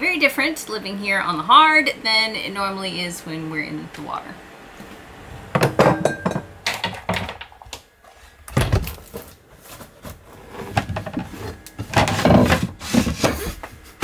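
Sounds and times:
glass bottles clinking into holder: 5.8 - 6.6.

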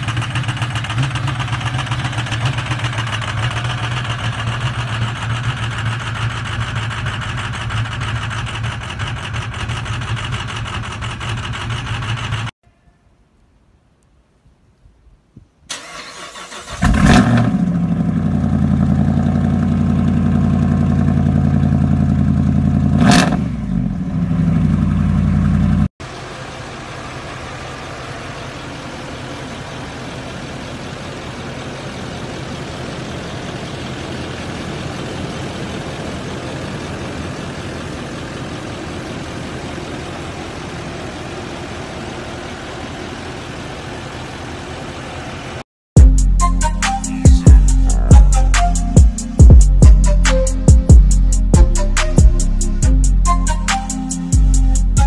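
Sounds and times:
pickup engine cranking and running: 0.0 - 12.6, 15.7 - 45.6.

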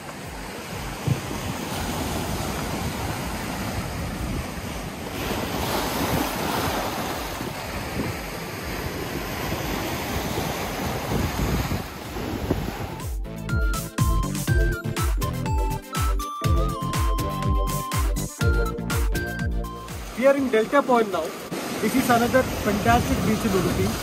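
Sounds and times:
wind buffeting microphone: 0.0 - 13.0
waves breaking on beach: 0.0 - 13.1, 19.8 - 24.0.

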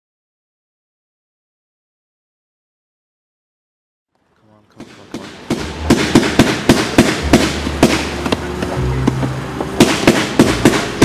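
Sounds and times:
firework bangs and crackles: 4.8 - 11.0
loud music with low bass: 5.4 - 11.0.

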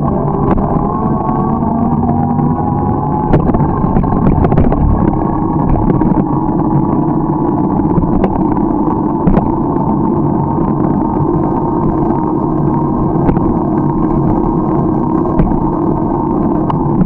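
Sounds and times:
bicycle rumbling on road: 0.0 - 17.0
sharp knocks and rattles: 3.3 - 6.2.

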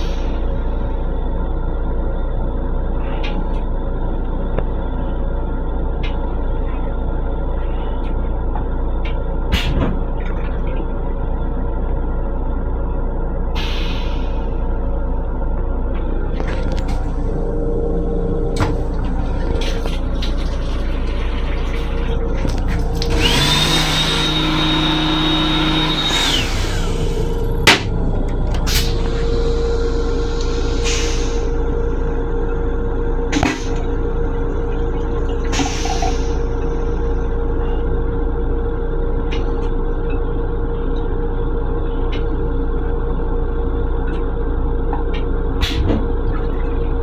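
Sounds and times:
low hum: 0.0 - 47.0
railcar low rumble: 0.0 - 47.0
small motor whining: 23.0 - 27.2.

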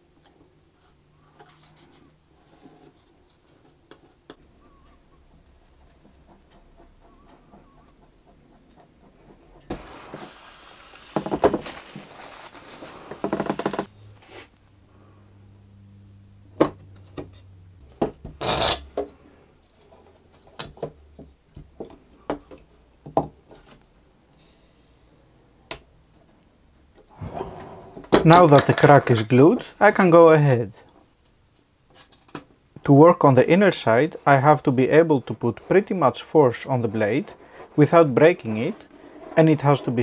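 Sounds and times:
wood rubbing and scraping: 5.7 - 14.5.

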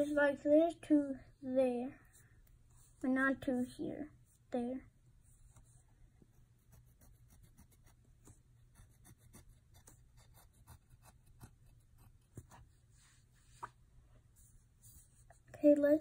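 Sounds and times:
pencil scratching on paper: 5.2 - 13.5, 14.4 - 15.5.

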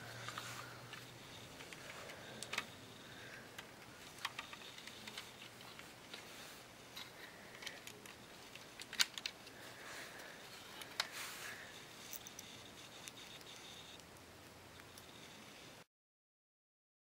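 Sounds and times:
plastic toy parts clicking: 1.5 - 2.8, 3.6 - 6.2, 6.9 - 9.5.

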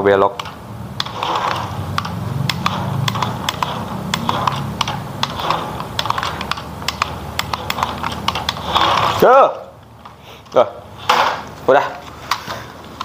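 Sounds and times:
rapid irregular clicking: 0.2 - 13.0
toy truck motor humming: 1.0 - 9.3.

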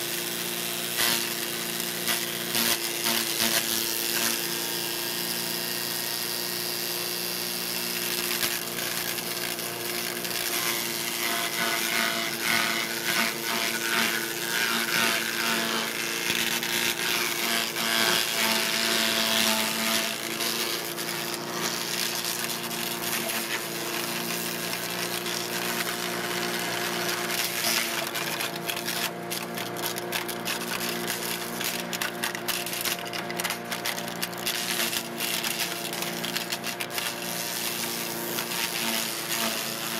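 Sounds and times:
chipper shredder engine running: 0.1 - 39.9
yard waste being chipped: 0.3 - 4.6, 7.8 - 39.9
sharp cracks and ticks: 24.2 - 37.2.

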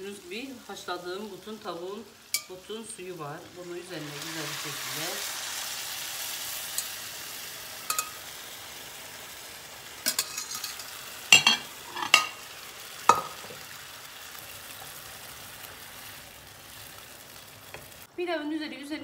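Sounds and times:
faint sizzle: 0.0 - 19.0
metal pot and strainer clanking: 7.9 - 8.2, 10.1 - 12.4.

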